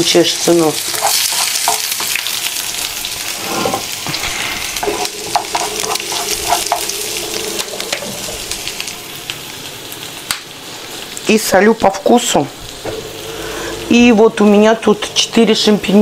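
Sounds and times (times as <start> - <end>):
onion sizzling in oil: 0.0 - 16.0
utensil tapping a pan: 4.8 - 7.0.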